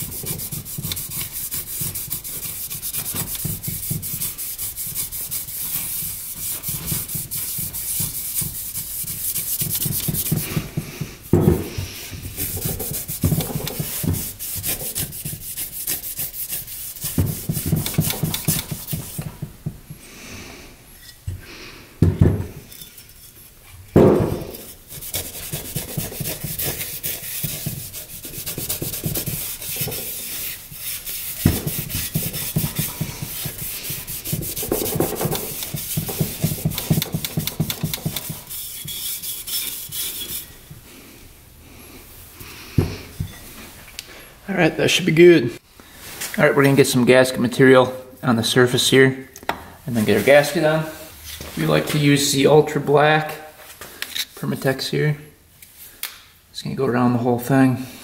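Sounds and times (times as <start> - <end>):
loud knocks: 24.0 - 24.5
abrasive scuffing on metal: 24.0 - 40.4.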